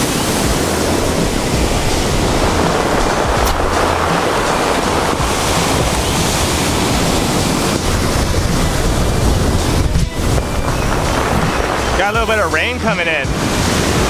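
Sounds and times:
surf washing over stones: 0.0 - 14.0
wind buffeting microphone: 0.0 - 14.0.

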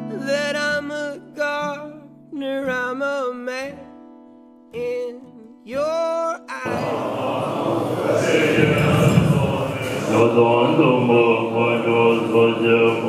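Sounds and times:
monks chanting together: 6.6 - 13.0
song with singing: 6.6 - 13.0.

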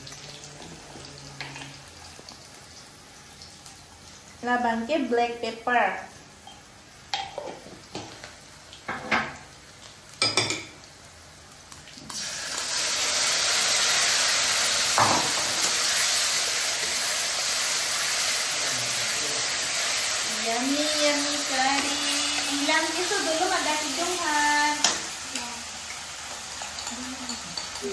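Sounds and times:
paste sizzling in hot wok: 6.3 - 27.9.

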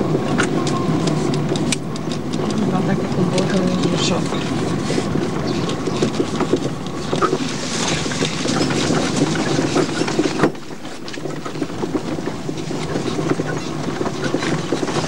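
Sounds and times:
rattling and knocking: 0.0 - 15.0
road noise: 0.0 - 15.0
small car engine running: 0.0 - 15.0.

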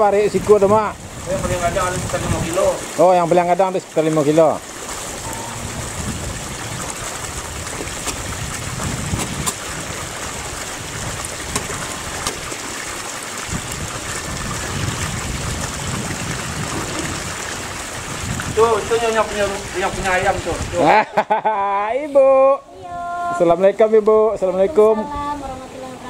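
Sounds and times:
fish splashing in pond: 3.8 - 19.0.

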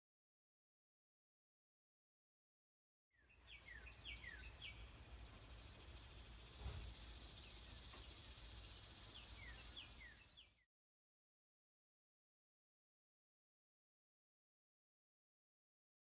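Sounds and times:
small birds chirping: 3.2 - 10.7
insect drone: 3.4 - 10.6.

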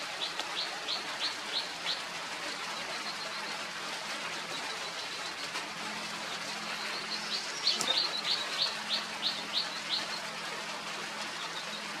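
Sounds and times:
low hum and hiss: 0.0 - 12.0
bird chirping: 6.8 - 10.2.

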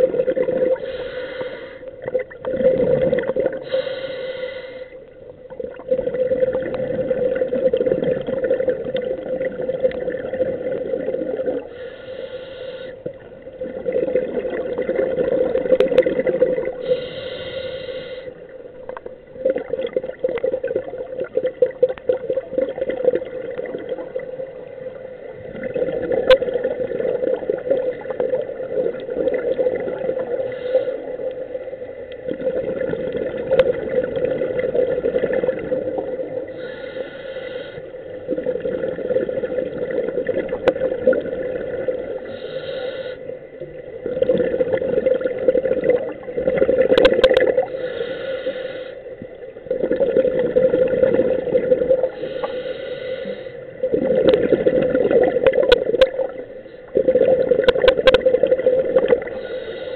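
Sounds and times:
exhaled bubbles rushing: 0.0 - 0.8, 2.0 - 3.7, 5.5 - 11.7, 13.2 - 16.9, 18.8 - 30.5, 32.2 - 36.6, 38.2 - 42.3, 43.6 - 47.8, 49.6 - 52.2, 53.7 - 59.4
regulator inhalation hiss: 0.8 - 1.9, 3.6 - 5.0, 11.7 - 13.2, 16.8 - 18.5, 30.4 - 31.3, 36.5 - 38.1, 42.2 - 43.4, 47.7 - 49.2, 52.1 - 53.8, 59.3 - 59.9.

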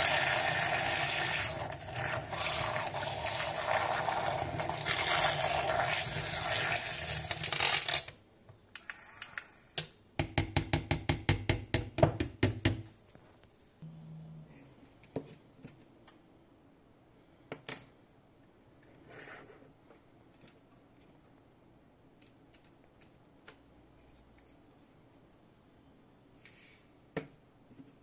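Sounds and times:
handheld mini mixer whisking: 0.0 - 7.1.

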